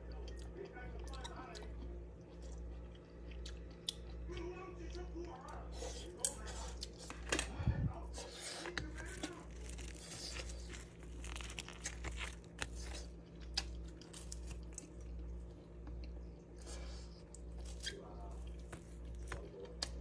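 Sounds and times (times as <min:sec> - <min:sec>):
low pulsing hum: 0:00.0 - 0:20.0
flatbread tearing and crackling: 0:08.4 - 0:15.9.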